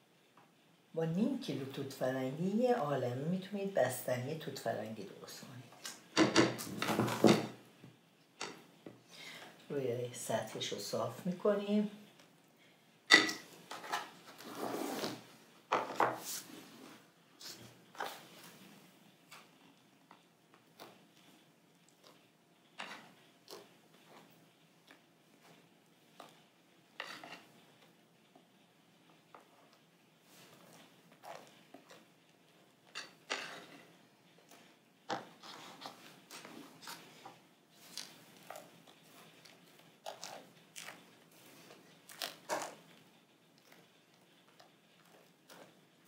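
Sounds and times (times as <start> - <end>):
rustling: 13.4 - 46.0.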